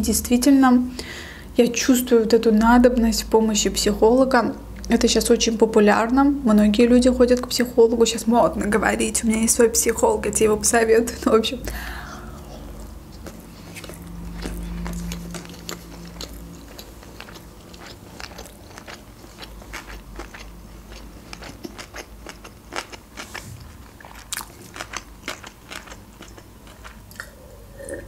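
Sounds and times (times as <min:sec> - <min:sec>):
low steady hum: 0:00.0 - 0:28.0
person chewing food: 0:11.9 - 0:28.0.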